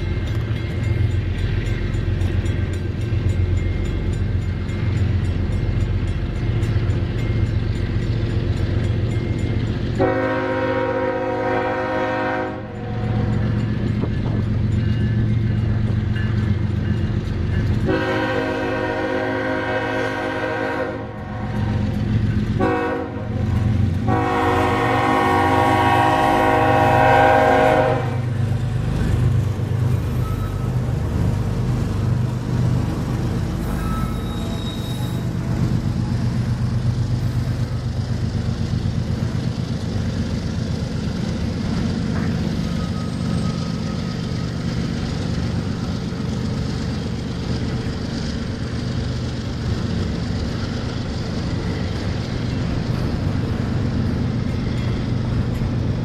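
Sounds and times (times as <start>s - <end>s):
train rumbling past: 0.0s - 56.0s
locomotive air horn blasts: 10.0s - 13.3s, 17.8s - 21.7s, 22.6s - 28.4s.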